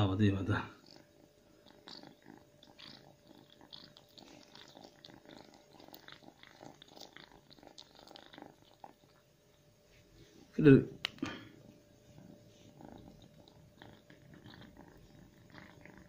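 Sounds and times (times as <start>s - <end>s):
cat chewing and licking: 0.8s - 9.7s, 12.2s - 16.0s.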